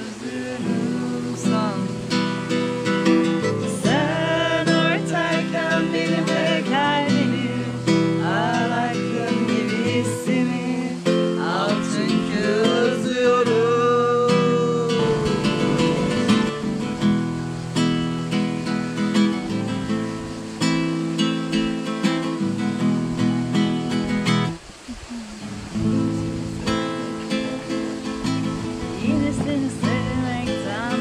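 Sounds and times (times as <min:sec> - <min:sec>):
person singing: 0:00.0 - 0:17.1, 0:24.9 - 0:31.0
acoustic guitar strumming: 0:00.0 - 0:24.7, 0:25.4 - 0:31.0.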